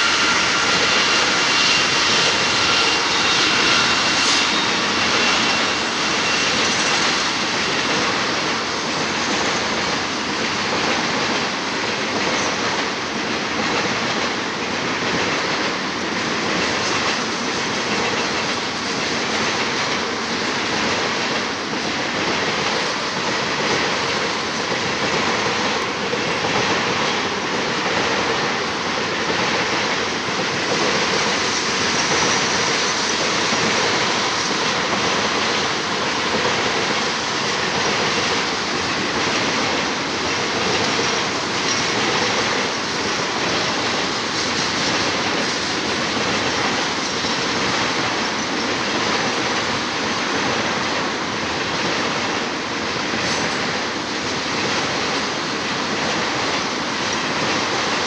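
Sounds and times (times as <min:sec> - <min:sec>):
steel wheels rolling on rail: 0:00.0 - 0:58.0.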